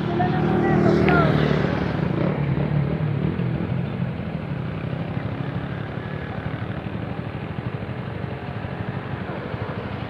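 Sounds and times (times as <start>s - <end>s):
motorcycle engine idling: 2.8s - 10.0s.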